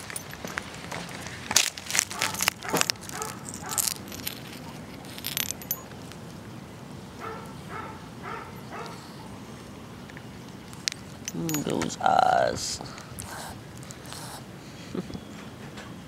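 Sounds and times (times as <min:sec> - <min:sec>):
collar tag jingling: 0:00.0 - 0:01.0, 0:01.6 - 0:06.2, 0:10.6 - 0:13.1
rustling: 0:00.0 - 0:06.4.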